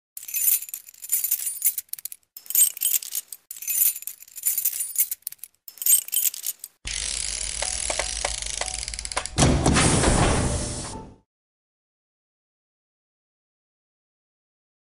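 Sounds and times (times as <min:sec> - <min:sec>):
metallic jingling and rattling: 0:00.2 - 0:06.8.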